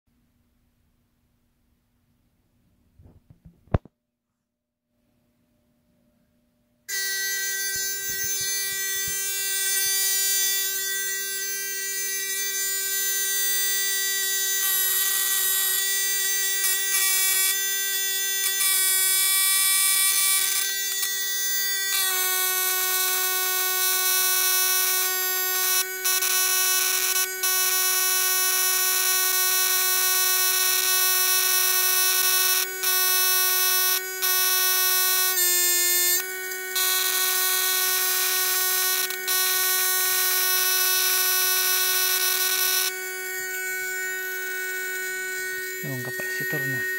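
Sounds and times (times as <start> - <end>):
electrical machine whine and hiss: 33.0 - 46.9.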